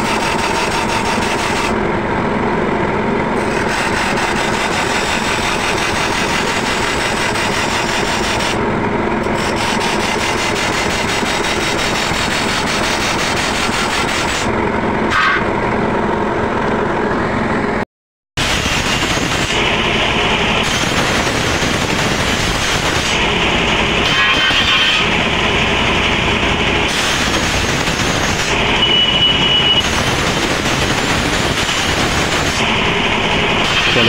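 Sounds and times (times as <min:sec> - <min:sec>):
grinding wheel scraping steel blade: 0:00.0 - 0:01.8, 0:03.4 - 0:08.6, 0:09.2 - 0:14.5, 0:24.0 - 0:25.1, 0:33.6 - 0:34.0.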